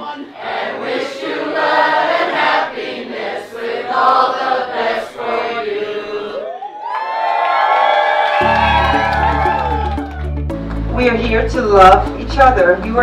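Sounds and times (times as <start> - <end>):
group singing in chorus: 0.4 - 6.5.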